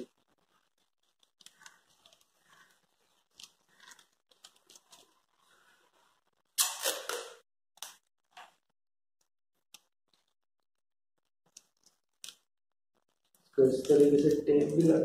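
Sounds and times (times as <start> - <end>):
faint rustling and crinkling: 0.0 - 6.6, 11.4 - 15.0
adhesive tape ripping off roll: 6.6 - 8.0.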